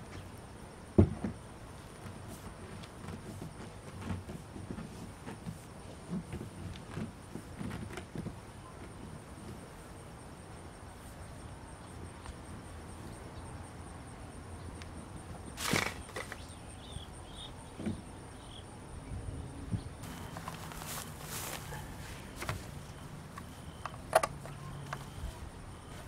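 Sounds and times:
faint outdoor background: 0.0 - 26.0
plastic pipe fittings rattling: 15.6 - 16.4.

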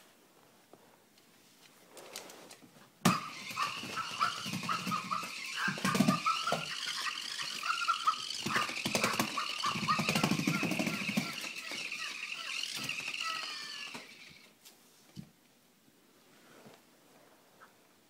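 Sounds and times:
puppy whining squeals: 3.1 - 14.4
puppy play-growls: 3.2 - 12.6.

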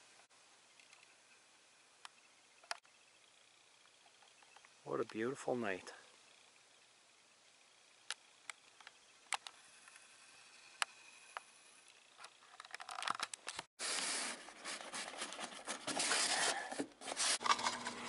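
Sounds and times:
faint night ambience: 0.0 - 12.6
cardboard box rustling and scraping: 13.8 - 17.7.

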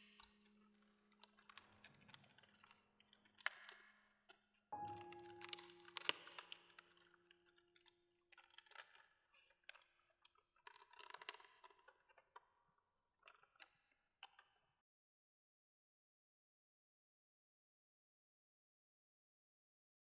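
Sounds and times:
faint clicks and crackles: 0.0 - 14.8
faint held tone: 4.8 - 6.9.

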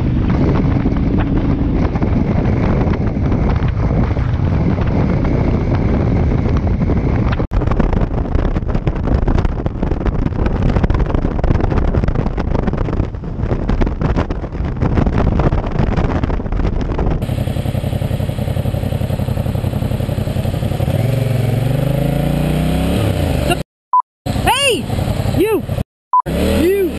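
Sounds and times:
wind buffeting microphone: 0.0 - 23.4
motorcycle engine revving: 16.0 - 23.6, 24.3 - 26.9
engine and traffic noise: 24.3 - 26.9.

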